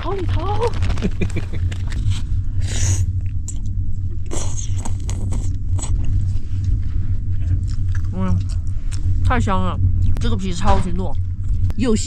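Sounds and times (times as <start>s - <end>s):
train rumble: 0.0s - 12.0s
chewing: 7.4s - 9.2s.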